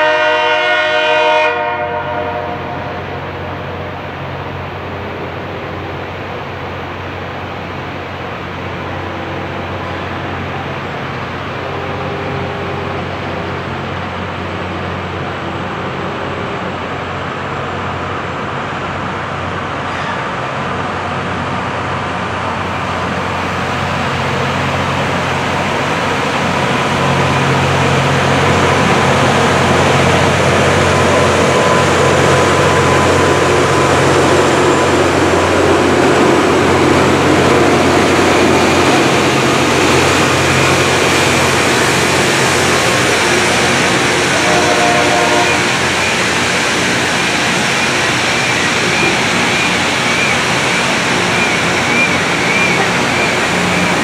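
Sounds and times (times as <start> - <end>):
hiss of rail grinding: 22.6 - 54.0.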